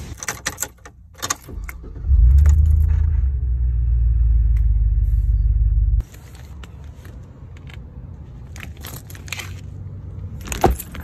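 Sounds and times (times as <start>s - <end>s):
car engine starting and running: 0.0s - 6.2s.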